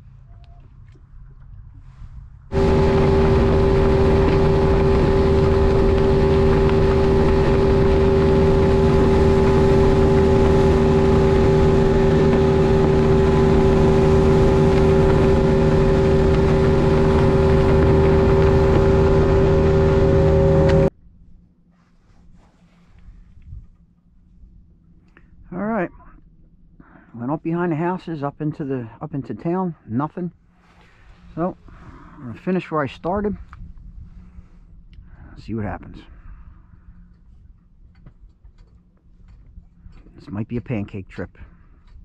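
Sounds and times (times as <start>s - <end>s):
outboard motor running: 2.5s - 20.9s
rush of wind and water: 2.5s - 20.9s.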